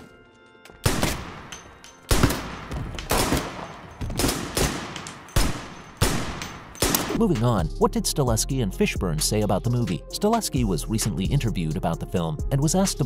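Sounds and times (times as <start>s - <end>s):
rifle shots echoing: 0.8s - 7.2s.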